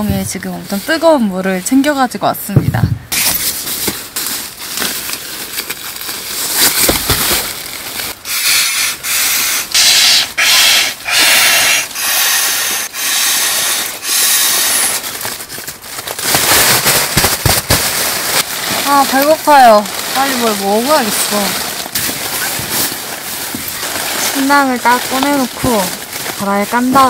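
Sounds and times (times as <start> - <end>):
breaths blowing into pump sack: 8.2 - 15.5, 16.2 - 27.0
fabric rustling: 15.0 - 27.0.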